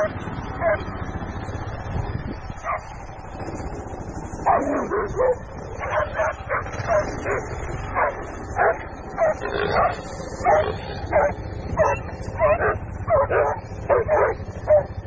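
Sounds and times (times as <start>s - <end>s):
dog barking and yelping: 0.0s - 0.9s, 2.6s - 3.2s, 4.4s - 15.0s.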